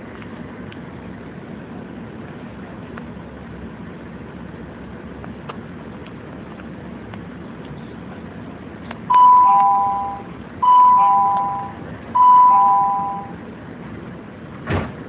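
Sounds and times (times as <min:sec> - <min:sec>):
low steady hum: 0:00.0 - 0:15.0
two-tone door chime: 0:09.1 - 0:13.4.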